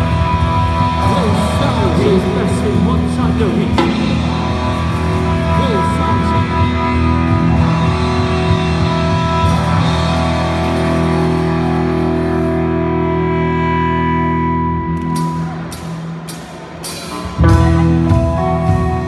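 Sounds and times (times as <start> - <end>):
rock band ringing chord: 0.0 - 14.7
sharp hits: 3.2 - 6.8.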